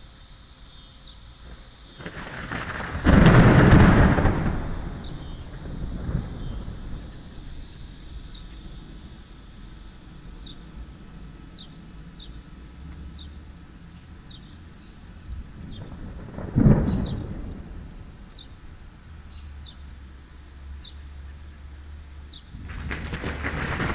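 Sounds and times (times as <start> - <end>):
thunder rumble: 1.9 - 13.6, 14.9 - 19.3, 22.5 - 23.9
loud thunderclap: 2.0 - 9.2, 15.6 - 18.6, 22.6 - 23.9.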